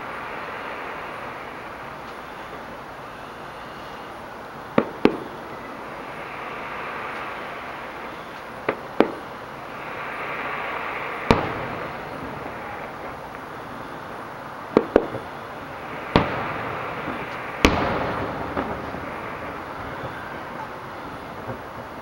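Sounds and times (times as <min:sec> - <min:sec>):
firework shells bursting: 0:00.0 - 0:22.0
steady hiss: 0:00.0 - 0:22.0.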